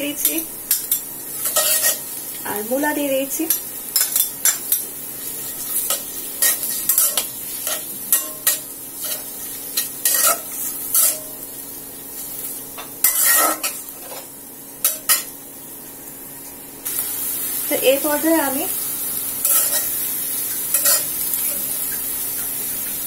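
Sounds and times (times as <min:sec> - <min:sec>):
oil sizzling: 0:00.0 - 0:23.0
metal spatula scraping metal pan: 0:00.2 - 0:02.0, 0:05.4 - 0:11.3, 0:13.0 - 0:14.3.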